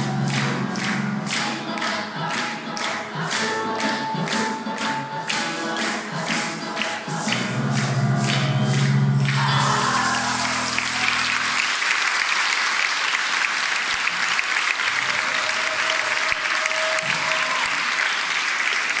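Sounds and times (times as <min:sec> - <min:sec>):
choir and piano chord: 0:00.0 - 0:11.6
large crowd clapping: 0:00.0 - 0:19.0.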